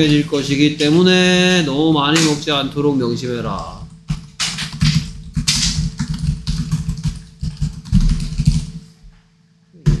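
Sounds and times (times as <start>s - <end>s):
typing on computer keyboard: 4.1s - 8.8s.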